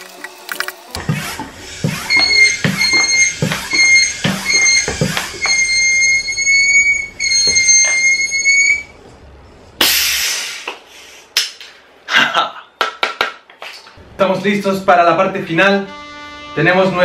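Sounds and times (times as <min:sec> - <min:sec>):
floor pump strokes: 0:01.0 - 0:05.8
loud hiss of air: 0:09.8 - 0:11.3
high-pitched held note: 0:15.8 - 0:17.0.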